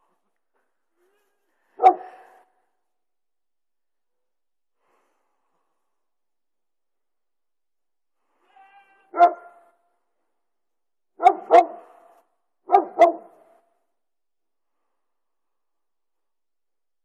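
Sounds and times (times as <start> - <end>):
dog barking: 1.8 - 2.5, 9.1 - 9.7, 11.2 - 13.6.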